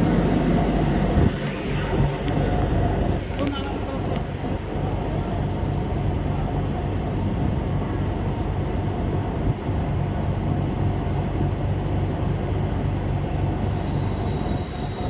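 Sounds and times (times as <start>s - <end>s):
station platform low hum: 0.0s - 15.0s.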